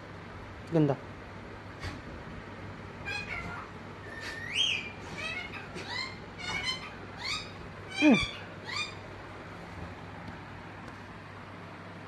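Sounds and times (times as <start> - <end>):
parakeet calling: 3.0 - 9.4.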